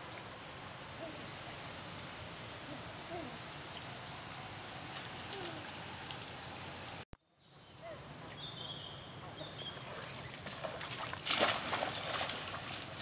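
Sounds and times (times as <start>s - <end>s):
stream water running: 0.0s - 7.0s, 8.3s - 13.0s
splashing water: 9.7s - 13.0s.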